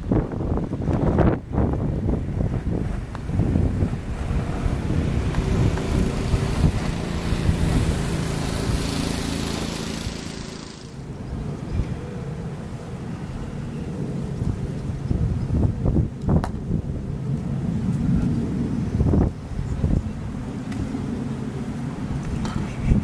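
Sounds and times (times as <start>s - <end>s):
wind buffeting microphone: 0.0s - 23.0s
steady hiss: 3.8s - 11.2s.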